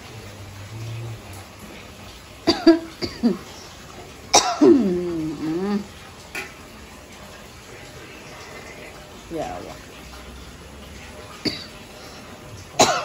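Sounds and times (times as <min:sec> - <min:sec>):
person coughing: 0:02.5 - 0:03.4, 0:12.8 - 0:13.0.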